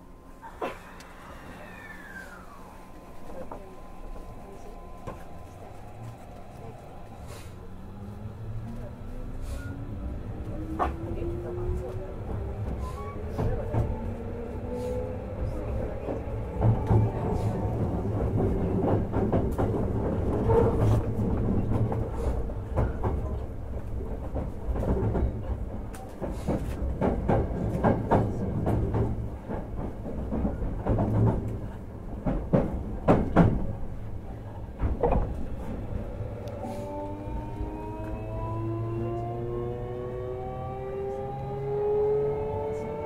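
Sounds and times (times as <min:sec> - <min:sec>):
train interior low hum: 0:00.0 - 0:43.0
train motor whine rising: 0:00.9 - 0:08.7, 0:35.8 - 0:43.0.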